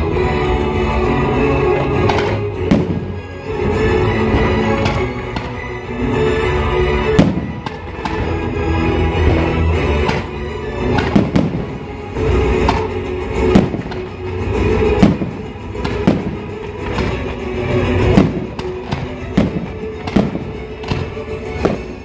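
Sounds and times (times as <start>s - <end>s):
loud music soundtrack: 0.0s - 22.0s
firework shells bursting: 1.9s - 3.3s, 7.1s - 22.0s.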